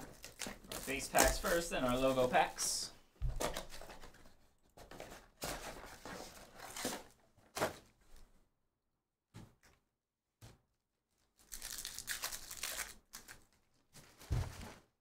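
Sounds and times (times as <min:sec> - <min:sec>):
foil packs rustling and tearing: 0:00.0 - 0:02.8, 0:05.4 - 0:07.2, 0:11.4 - 0:14.6.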